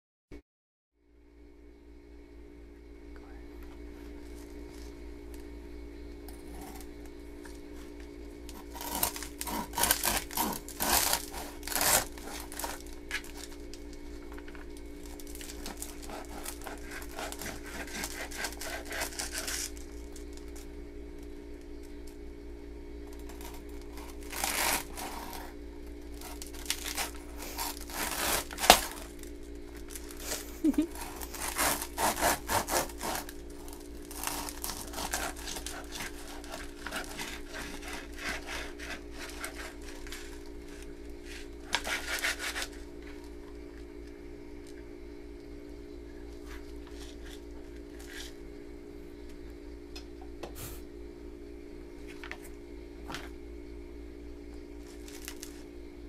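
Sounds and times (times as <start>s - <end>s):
knife sawing through bread crust: 8.5s - 13.5s, 15.3s - 19.8s, 23.4s - 25.6s, 26.2s - 29.2s, 30.0s - 43.2s.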